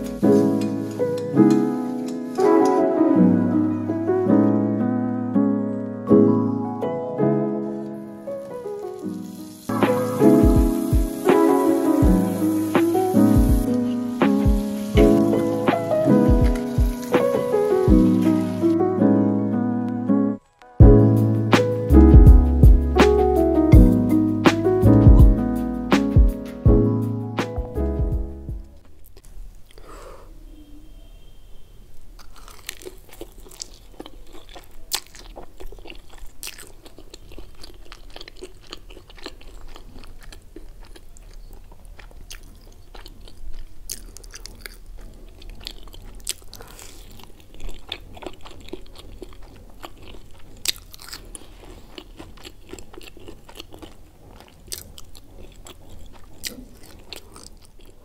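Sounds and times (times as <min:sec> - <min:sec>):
crunching and chewing food: 0:28.8 - 0:29.9, 0:32.2 - 0:58.0.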